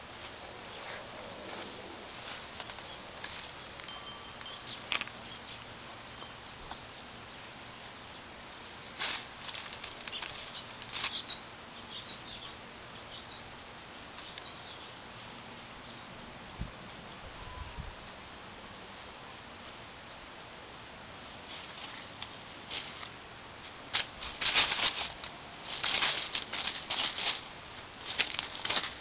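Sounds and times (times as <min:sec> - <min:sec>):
hens rustling in dry grass: 0:00.0 - 0:07.8, 0:08.4 - 0:12.3, 0:13.5 - 0:29.0
steady background hiss: 0:00.0 - 0:29.0.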